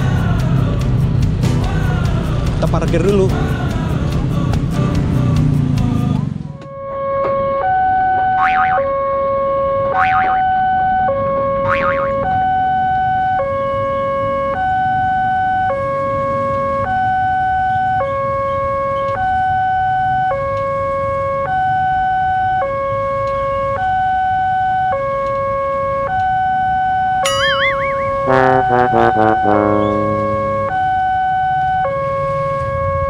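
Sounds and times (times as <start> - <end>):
level crossing two-tone alarm: 6.8 - 13.6, 23.6 - 32.2.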